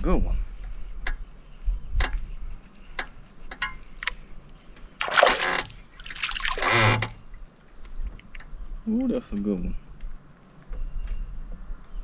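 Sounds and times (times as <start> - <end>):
fish splashing at water surface: 5.0 - 6.7.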